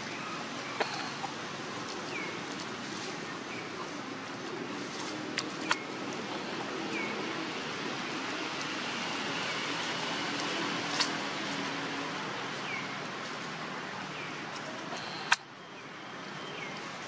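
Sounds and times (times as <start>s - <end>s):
short sharp clicks: 14.9s - 15.4s.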